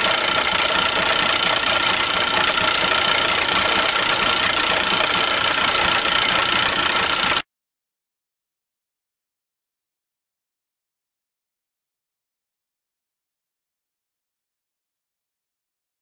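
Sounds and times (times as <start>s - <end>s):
metal lathe running: 0.0s - 7.4s.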